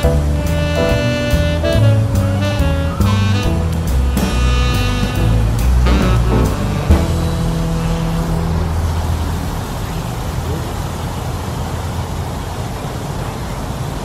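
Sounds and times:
music with held notes: 0.0s - 9.6s
outdoor rumble and hiss: 0.0s - 14.0s.

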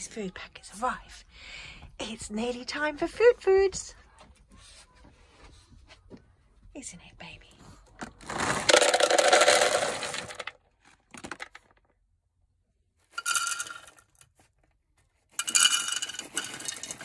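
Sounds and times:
dry kibble pouring into plastic bowls: 8.0s - 10.5s, 13.1s - 14.2s, 15.4s - 17.0s.

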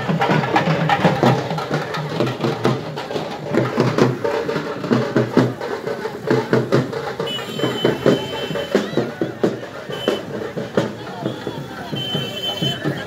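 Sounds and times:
drums played with sticks: 0.0s - 13.0s.

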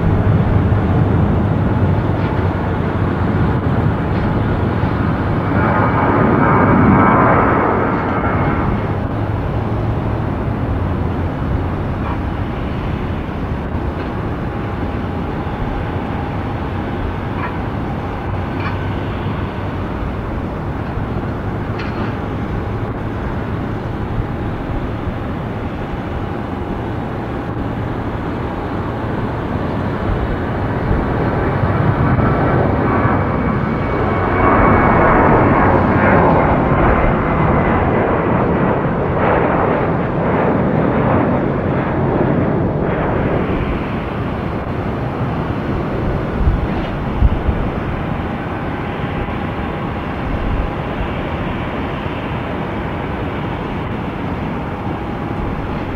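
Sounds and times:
jet engine rumble: 0.0s - 55.9s.

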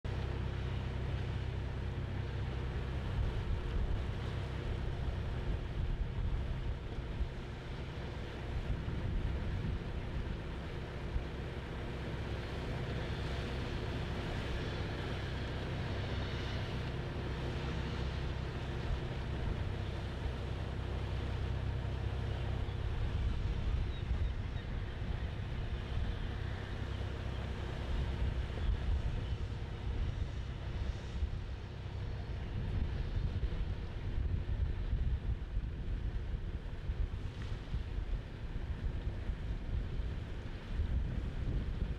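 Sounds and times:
boat engine humming: 0.1s - 41.9s
wind and water hissing: 0.1s - 41.9s.

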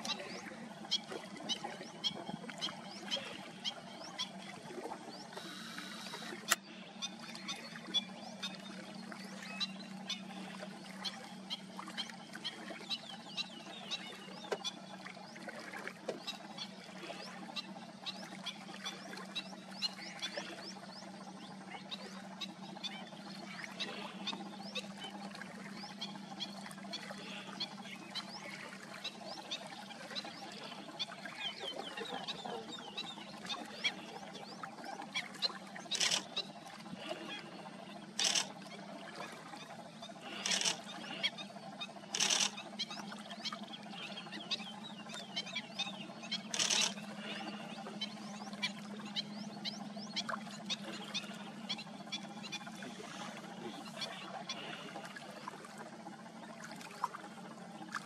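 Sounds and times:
steady low hum: 0.0s - 58.0s
small animals chirping and ticking: 35.9s - 36.5s, 38.2s - 38.6s, 40.2s - 41.3s, 42.0s - 43.0s, 46.2s - 47.4s.

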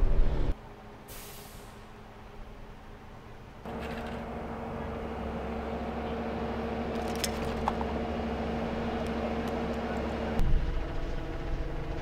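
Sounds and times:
vehicle engine idling: 3.6s - 12.0s.

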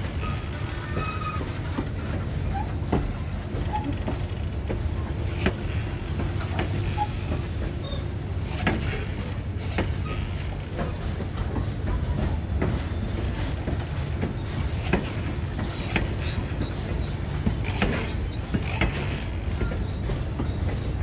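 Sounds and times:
wheel squeals: 0.0s - 1.8s, 6.6s - 9.0s, 9.9s - 10.6s, 15.8s - 21.0s
train wheels rumbling: 0.0s - 21.0s
wheel clicks and clunks on rail joints: 0.0s - 21.0s.

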